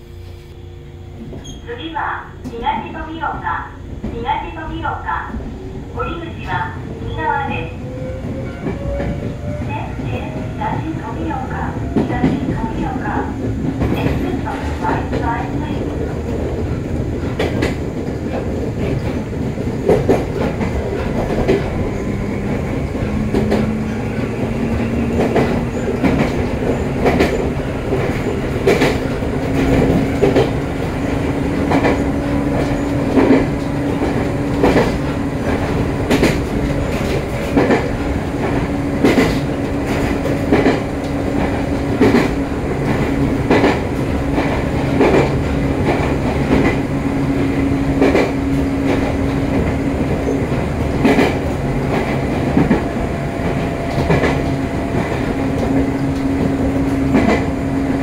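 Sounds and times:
train motor whine: 0.0s - 2.6s
wheels clacking over rail joints: 13.6s - 46.8s.

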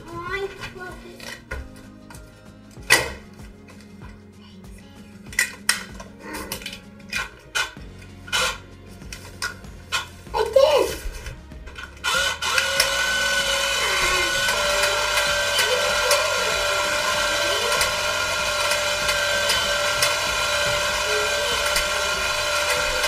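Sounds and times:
electric motor whirring: 11.0s - 23.0s.

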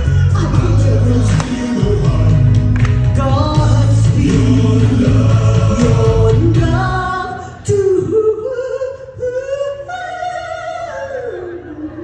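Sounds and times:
backing music: 0.0s - 8.9s
person singing into a microphone: 0.0s - 12.0s.

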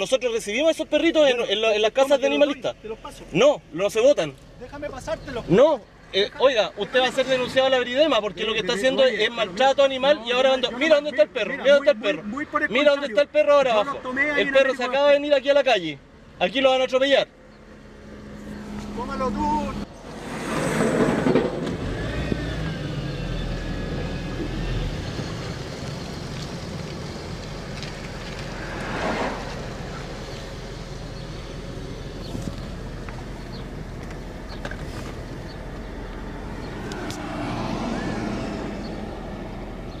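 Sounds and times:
road noise: 0.0s - 40.0s
car engine hum from inside: 13.8s - 40.0s.

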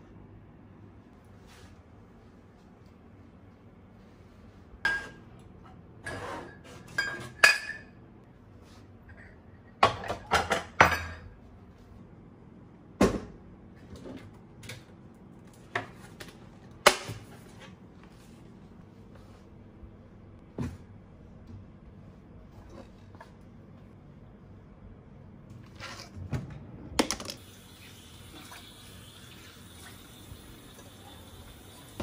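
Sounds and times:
dishes clinking on countertop: 4.8s - 5.3s, 6.0s - 8.0s, 9.1s - 11.4s.

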